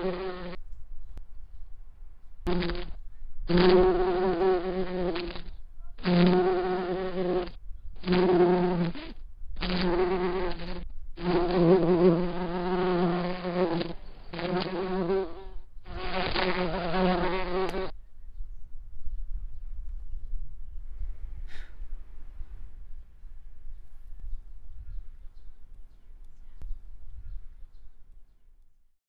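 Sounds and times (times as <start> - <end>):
insect buzzing: 0.0 - 0.6, 2.5 - 17.9.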